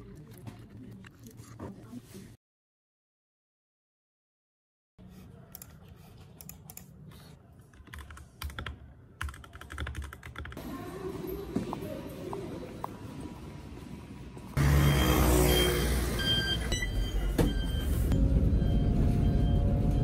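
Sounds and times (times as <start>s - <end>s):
typing on computer keyboard: 7.8s - 10.6s.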